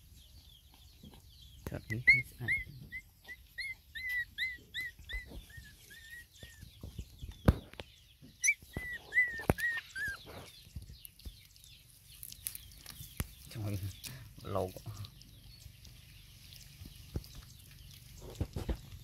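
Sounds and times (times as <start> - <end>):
puppies whining: 1.9 - 7.2, 8.2 - 10.6.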